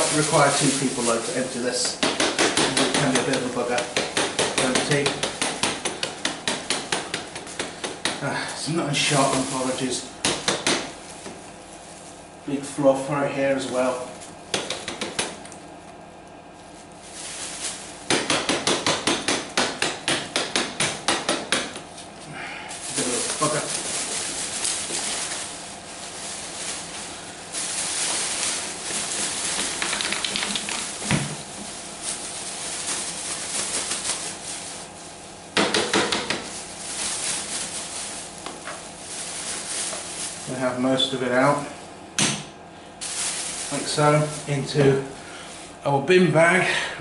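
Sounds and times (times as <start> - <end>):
plastic dust bin shaken and emptied: 0.0 - 1.9, 22.8 - 34.9
plastic bag rustling and crinkling: 0.0 - 2.0, 2.7 - 18.1, 21.7 - 42.0, 42.9 - 45.8
plastic dust bin knocking: 28.1 - 31.6, 35.6 - 36.5.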